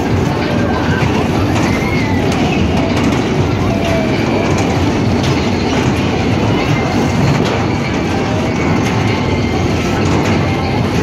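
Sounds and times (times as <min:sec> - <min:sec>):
amusement ride rumbling and clattering: 0:00.0 - 0:11.0.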